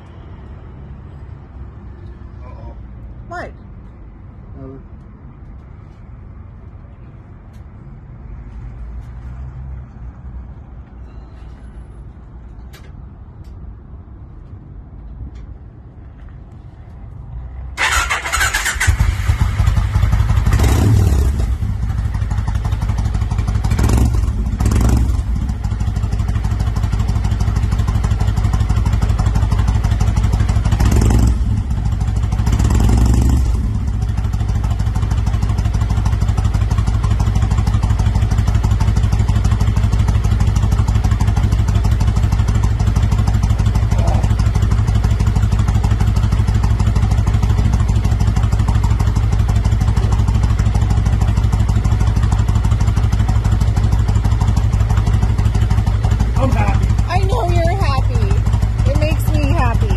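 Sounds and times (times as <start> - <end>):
motorcycle engine idling: 17.8 - 59.9
engine throttle blips: 52.3 - 59.9.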